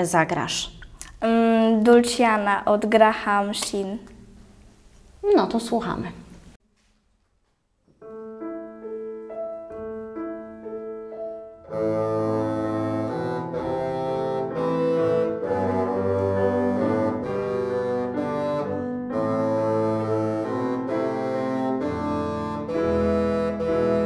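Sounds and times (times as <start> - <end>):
grand piano: 7.8 - 24.0
bassoon melody: 8.0 - 24.0.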